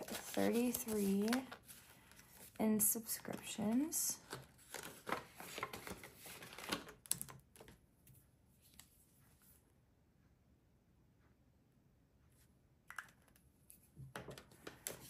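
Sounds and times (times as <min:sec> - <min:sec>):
paper bills rustling: 0:00.0 - 0:07.0.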